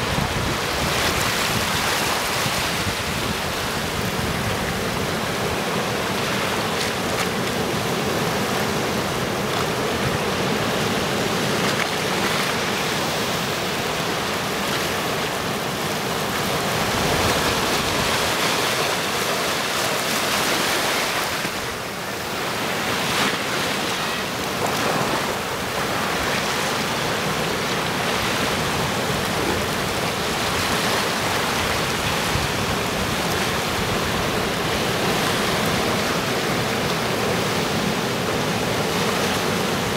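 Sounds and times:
sea surf washing around boulders: 0.0 - 39.9.

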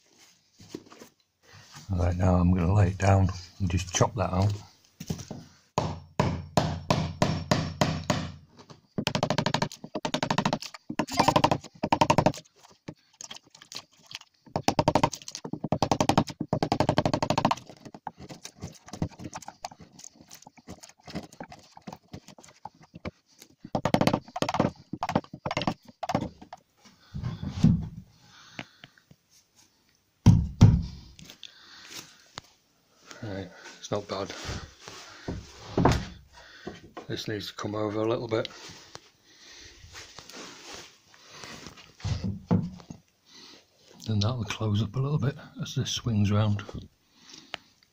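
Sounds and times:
chisel struck in sharp knocks: 5.8 - 8.4.

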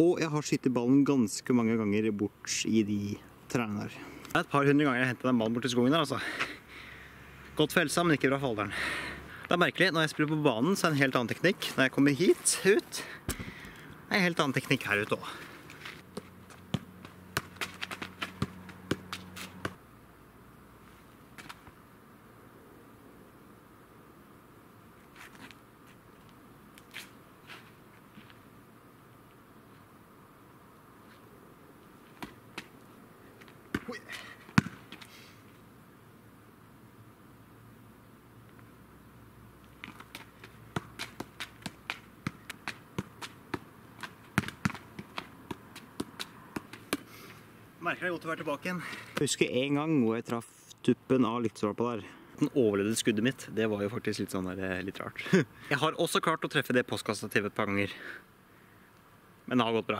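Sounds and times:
football knocking on foot and knee: 13.3 - 13.5, 16.1 - 19.8, 33.7 - 34.9, 39.8 - 47.1.

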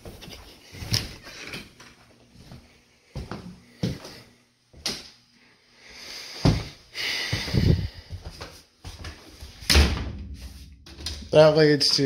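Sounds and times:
footsteps on hard floor: 2.3 - 4.8, 6.4 - 9.6.

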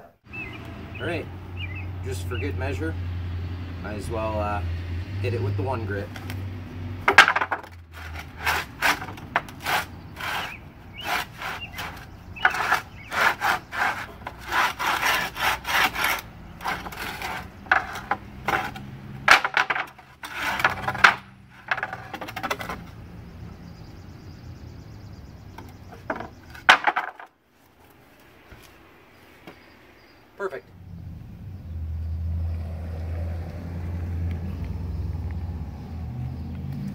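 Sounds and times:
sandpaper rubbing on wood: 8.0 - 18.1.

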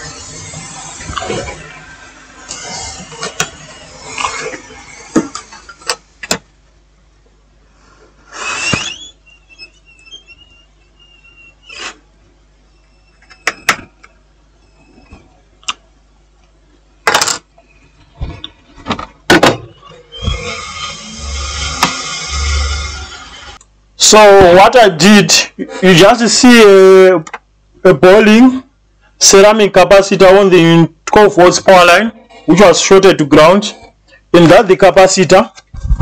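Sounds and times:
faint high whine: 7.7 - 16.3, 19.4 - 27.2.

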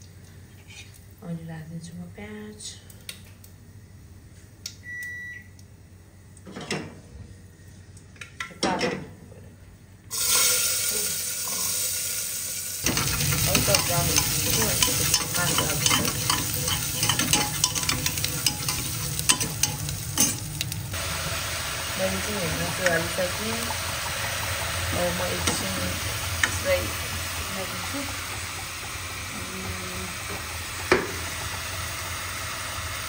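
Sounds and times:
onions sizzling in hot oil: 10.1 - 33.0.

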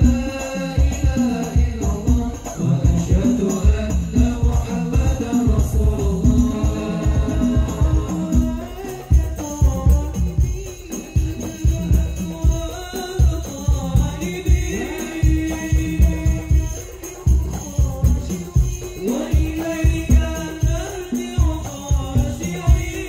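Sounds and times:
frame drum and bass drum: 0.0 - 23.0
jingling rattle: 0.0 - 23.0
men singing devotional melody: 0.0 - 23.0.

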